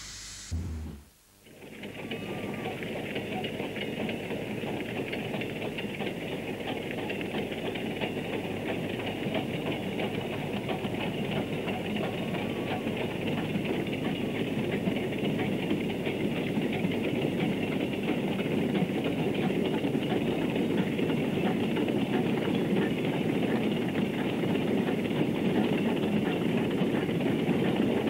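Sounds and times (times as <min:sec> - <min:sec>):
steam locomotive exhaust: 0:00.0 - 0:01.2.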